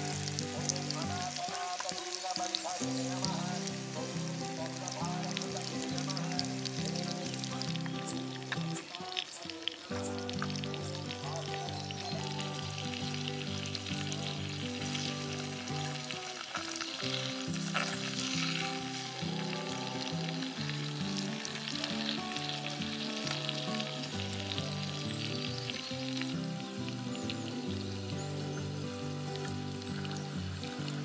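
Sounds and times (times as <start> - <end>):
food deep-frying in oil: 0.0 - 31.0
metal spoon moving through oil: 15.8 - 21.0.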